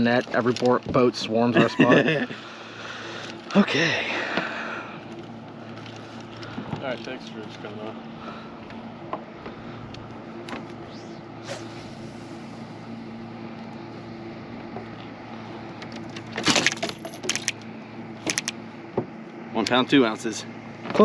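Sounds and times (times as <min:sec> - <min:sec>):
low electric hum: 0:00.0 - 0:21.0.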